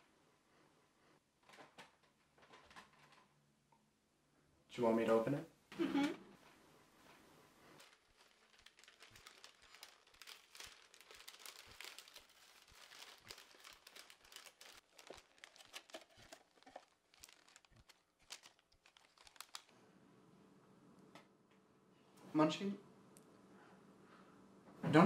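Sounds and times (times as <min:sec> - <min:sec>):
foil wrapping paper tearing: 0:07.8 - 0:19.7.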